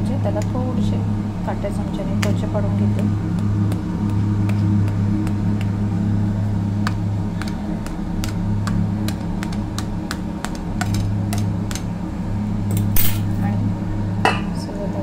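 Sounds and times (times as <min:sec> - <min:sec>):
low hum: 0:00.0 - 0:15.0
metal clink: 0:12.7 - 0:13.4.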